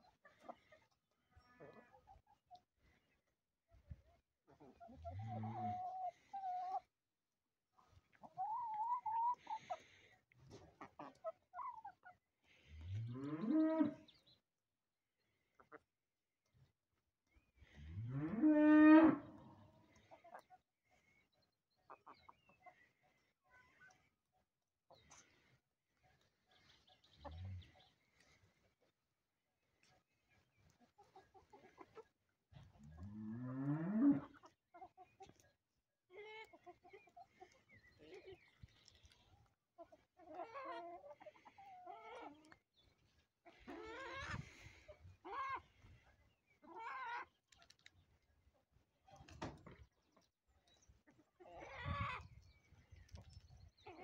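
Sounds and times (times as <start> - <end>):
cow mooing: 18.1 - 19.2.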